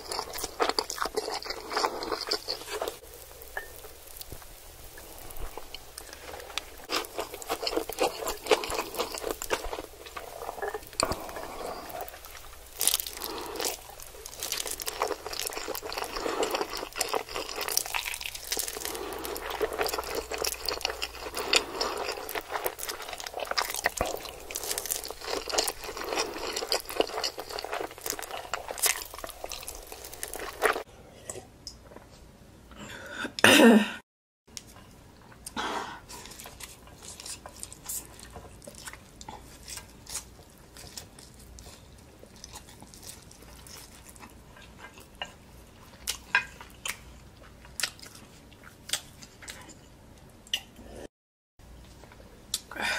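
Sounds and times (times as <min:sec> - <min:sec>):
wet chewing: 0:00.0 - 0:30.9, 0:36.2 - 0:49.8
crunchy bites: 0:11.0 - 0:30.8.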